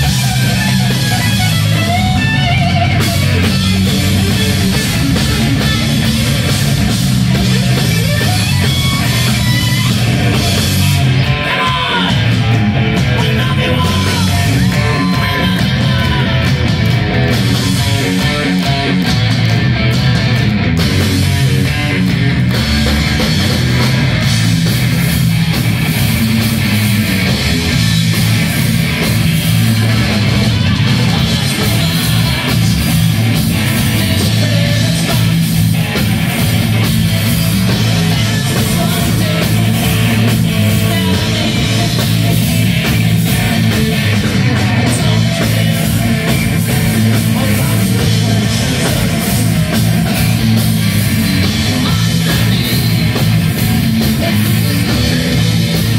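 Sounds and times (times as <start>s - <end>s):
bass guitar: 0.0s - 55.9s
distorted electric guitars: 0.0s - 55.9s
drum kit: 0.0s - 55.9s
person singing: 10.3s - 16.6s, 30.6s - 35.5s, 37.8s - 50.4s.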